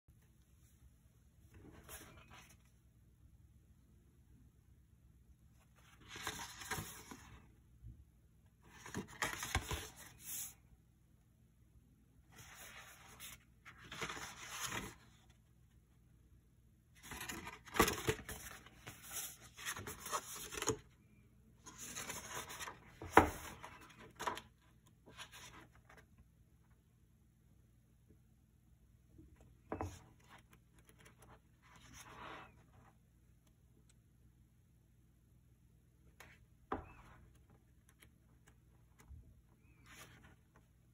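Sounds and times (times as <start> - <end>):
paper pages rustling: 5.6 - 7.4, 8.6 - 10.6, 12.3 - 15.5, 17.0 - 20.9, 21.6 - 26.2, 36.2 - 40.7.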